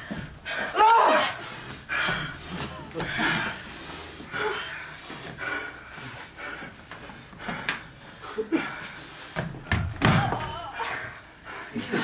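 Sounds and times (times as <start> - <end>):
panting breath: 1.4 - 9.5.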